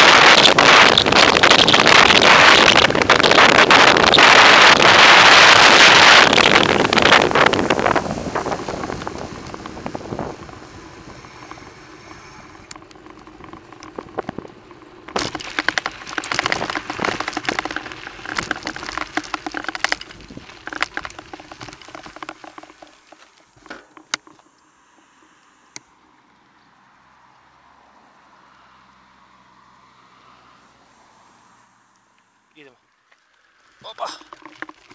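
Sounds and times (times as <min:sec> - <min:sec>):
wind rush on microphone: 0:00.0 - 0:22.3
camera rattling: 0:00.0 - 0:24.5, 0:34.0 - 0:34.9
bicycle tyres crunching on gravel: 0:00.0 - 0:25.4, 0:32.9 - 0:34.9.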